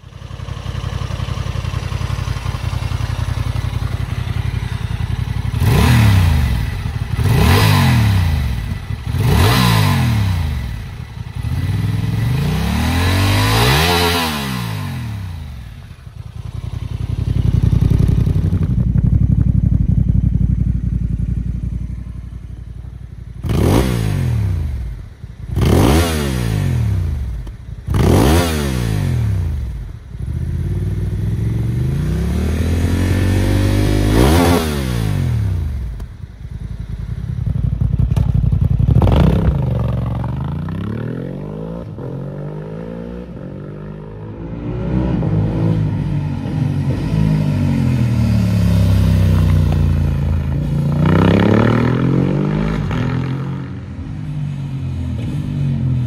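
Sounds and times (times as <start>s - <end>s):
motorcycle engine idling: 0.0s - 9.4s, 10.0s - 12.5s, 14.9s - 23.6s, 35.1s - 40.9s
motorcycle engine revving: 0.0s - 56.0s.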